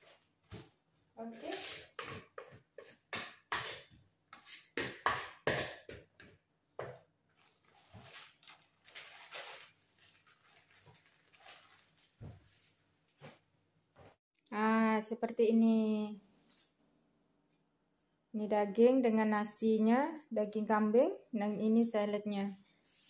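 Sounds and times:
plastic bags rustling: 7.3 - 12.5.

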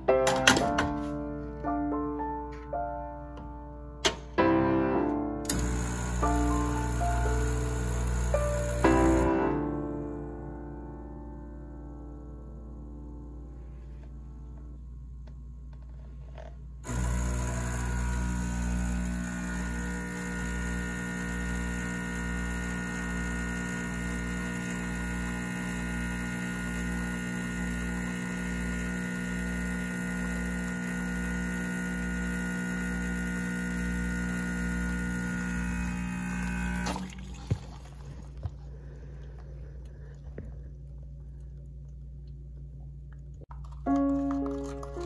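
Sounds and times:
espresso machine pump humming: 5.5 - 9.3, 15.2 - 39.8.

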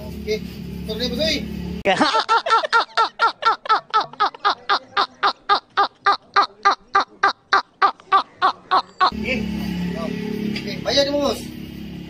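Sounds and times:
man laughing hard: 1.9 - 9.2.

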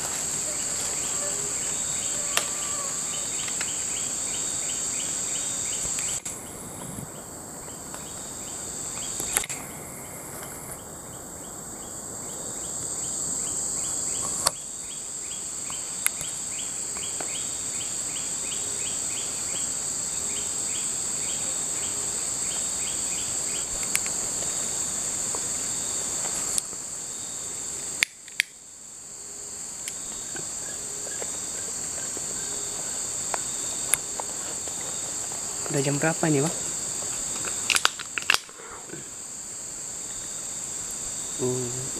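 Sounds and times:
insect chorus high-pitched drone: 0.0 - 41.9
pulsing insect chirp: 0.0 - 41.9.

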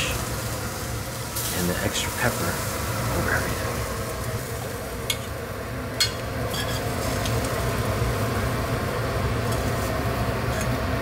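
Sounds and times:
low hum with faint hiss: 0.0 - 11.0
metal spoon clinking on pan: 6.0 - 7.4.

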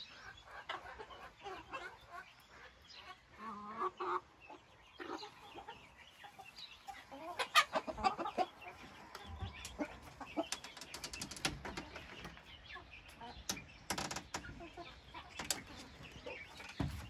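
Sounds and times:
chickens clucking: 0.0 - 17.0
sharp clicks and knocks: 10.4 - 12.5, 13.4 - 14.6, 15.3 - 16.0.

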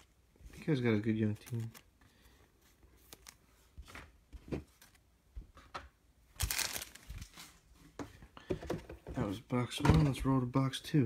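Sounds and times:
wrapper crinkling: 6.4 - 7.5.

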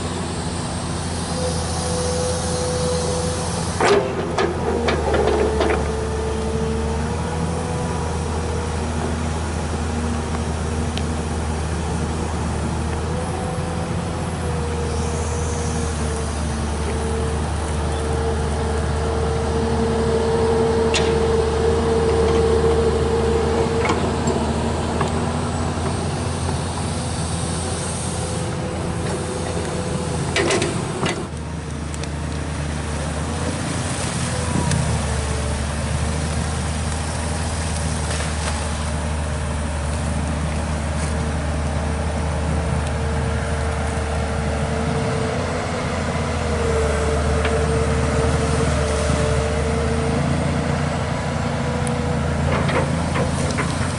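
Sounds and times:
hydraulic whine: 0.0 - 9.6, 10.8 - 31.4
excavator diesel engine running: 0.0 - 53.9.

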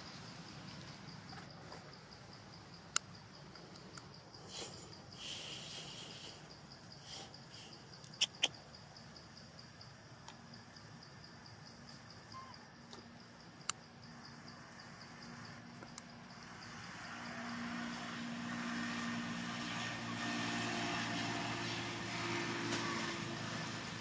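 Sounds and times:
insect chirping: 0.0 - 24.0
vehicle engine: 16.2 - 24.0.

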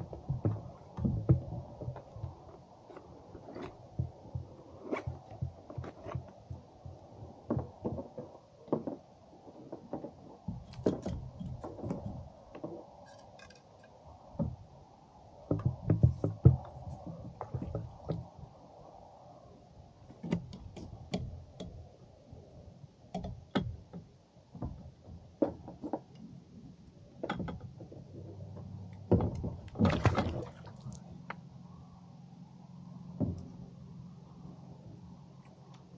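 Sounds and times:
knocks taps and thumps: 0.0 - 2.4, 15.5 - 18.3
faint low hum: 26.1 - 35.9.

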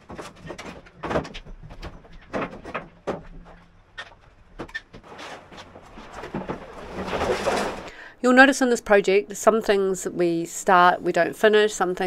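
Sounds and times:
metal parts knocking and clattering: 5.0 - 8.0
rusty tray being lifted: 5.0 - 8.0.

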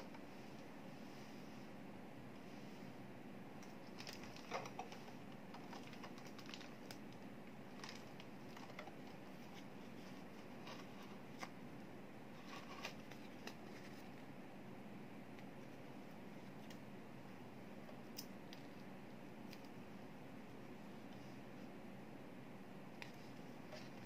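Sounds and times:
hands handling printer and paper: 3.6 - 11.6, 12.3 - 14.3.

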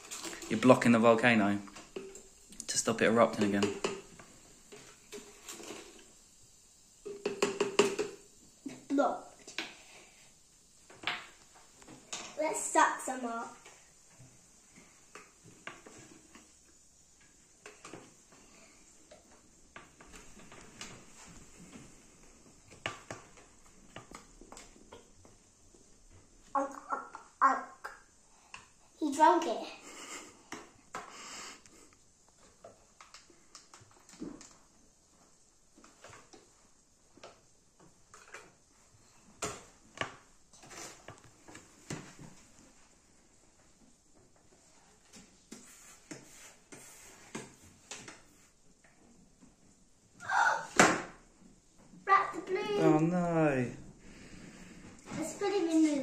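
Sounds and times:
plastic toys knocking on glass: 7.1 - 8.2.

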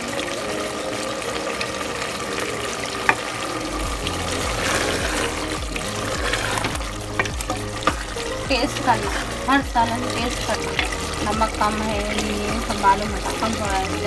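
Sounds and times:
spatula stirring wet curry: 3.9 - 13.5
spatula tapping metal pot: 5.6 - 13.5.

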